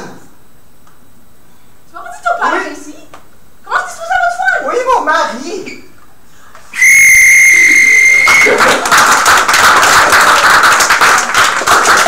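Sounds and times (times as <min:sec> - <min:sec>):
audience applause: 0:07.8 - 0:12.0.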